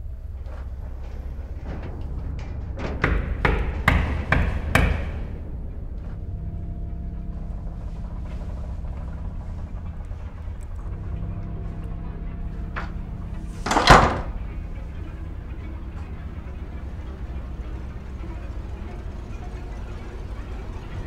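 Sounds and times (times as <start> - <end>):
low steady drone: 0.0 - 21.0
knocking on a door: 3.0 - 5.2.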